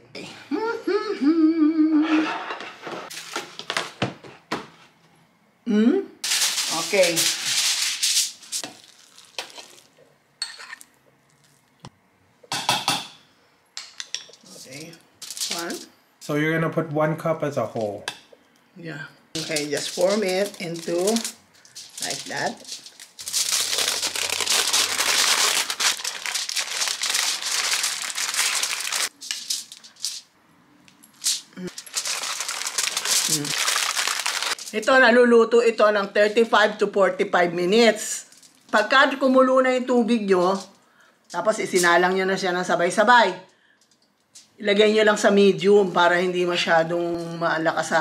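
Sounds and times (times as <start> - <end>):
aluminium foil crinkling: 6.2 - 10.0, 15.2 - 15.9, 19.4 - 30.3, 31.1 - 35.0.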